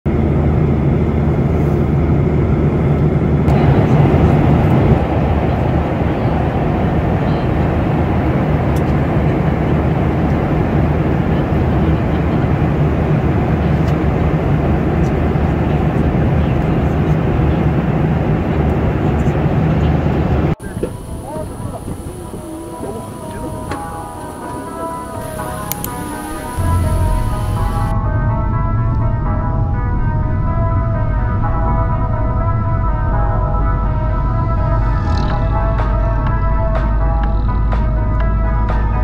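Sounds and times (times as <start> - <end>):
airliner cabin noise: 0.1 - 28.0
low engine hum: 0.1 - 39.0.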